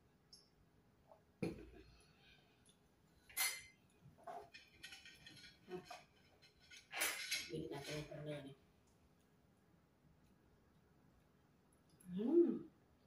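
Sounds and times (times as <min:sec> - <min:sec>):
spoon and fork clinking on plate: 0:03.3 - 0:03.8.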